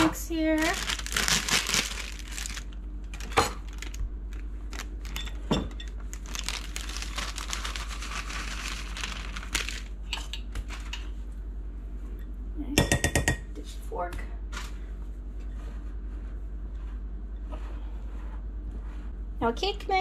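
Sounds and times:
plastic bag crinkling: 0.4s - 10.0s
dry mix pouring into glass bowl: 6.1s - 9.9s.

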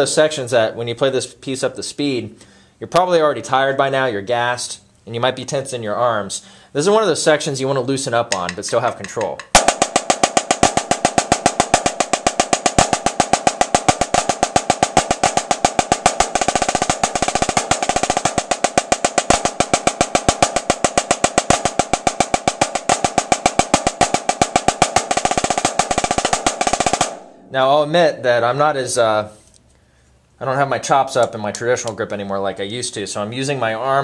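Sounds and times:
snare drum strokes: 8.3s - 27.6s.

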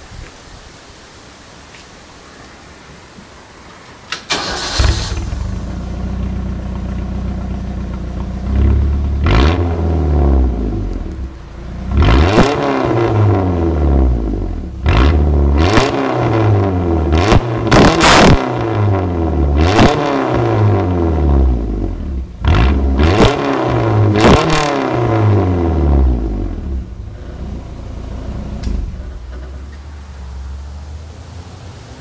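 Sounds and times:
truck engine starting and revving: 4.1s - 32.0s.

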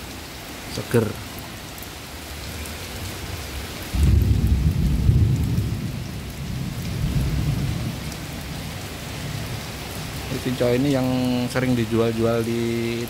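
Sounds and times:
heavy rain on leaves and paving: 0.0s - 13.0s
thunder rumbling: 3.9s - 10.5s.

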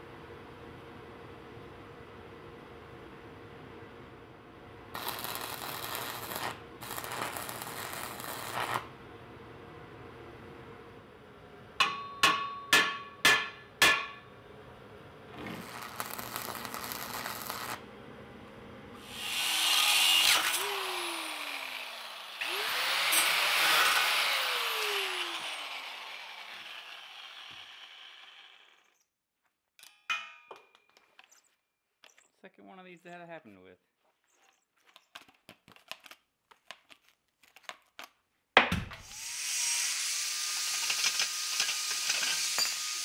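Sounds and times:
welding arc crackling: 4.9s - 8.9s, 15.6s - 17.8s
ringing metal strikes: 11.8s - 14.3s
power tool winding down: 19.0s - 29.0s, 39.0s - 43.0s.

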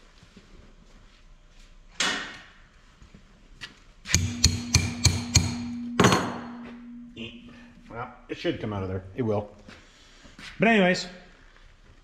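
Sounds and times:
hammer tapping on steel: 4.1s - 7.8s
metal ringing: 4.2s - 8.0s.

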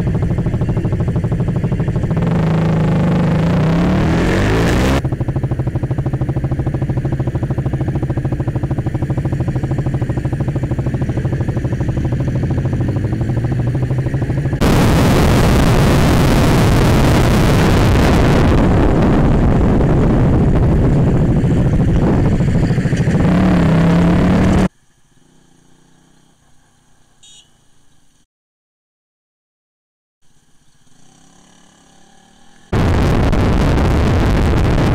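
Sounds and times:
motorcycle engine running: 0.0s - 24.7s, 30.8s - 34.9s
wind noise while riding: 14.7s - 23.7s.

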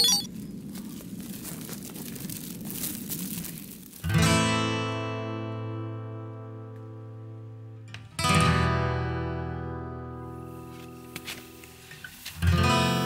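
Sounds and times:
soft noise with faint crackles: 0.0s - 4.5s, 10.2s - 12.7s
acoustic guitar chord strum: 8.2s - 10.5s.

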